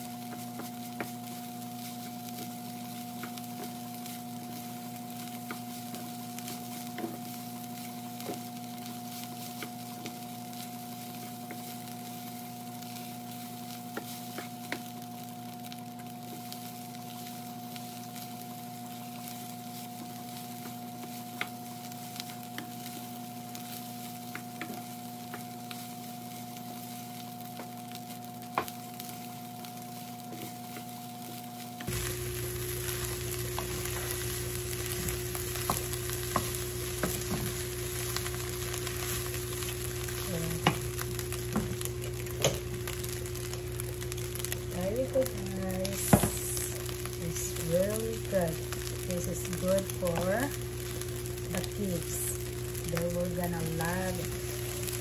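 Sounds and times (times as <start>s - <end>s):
rice sizzling in a frying pan: 0.0s - 55.0s
steady hum: 31.8s - 55.0s.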